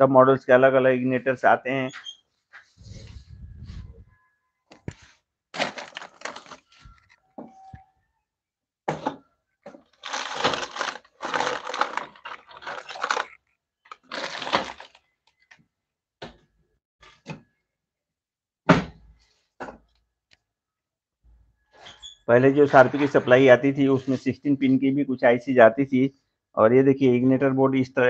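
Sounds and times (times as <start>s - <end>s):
hands rummaging among parts: 5.6s - 7.7s.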